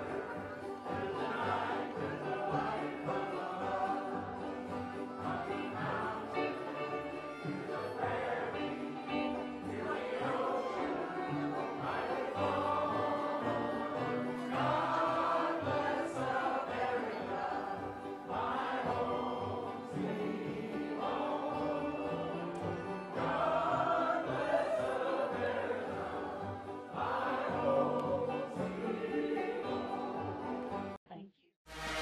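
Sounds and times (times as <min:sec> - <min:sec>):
choir singing slow chords: 0:00.0 - 0:31.0.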